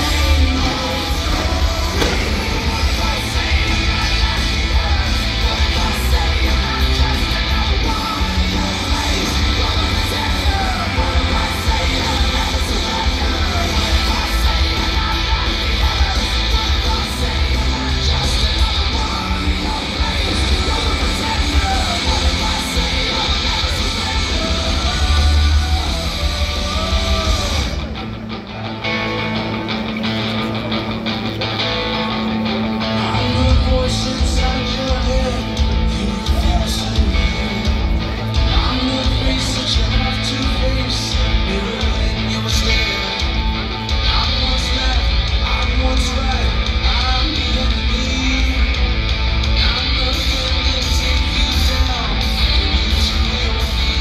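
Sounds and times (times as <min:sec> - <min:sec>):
booming bass: 0:00.0 - 0:08.5
steady drum beat: 0:00.0 - 0:27.9, 0:33.3 - 0:54.0
distorted electric guitar: 0:00.0 - 0:54.0
rock music with singing: 0:00.0 - 0:54.0.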